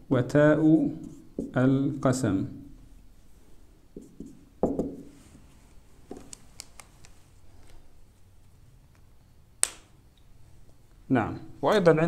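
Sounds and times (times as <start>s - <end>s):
marker clicks and taps on whiteboard: 1.0s - 1.6s, 4.0s - 5.1s.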